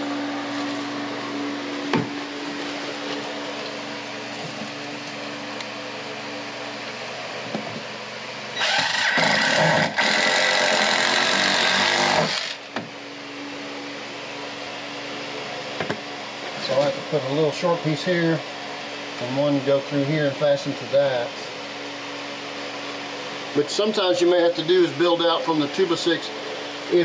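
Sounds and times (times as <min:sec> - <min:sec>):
cordless drill driving screws: 0:08.6 - 0:12.7.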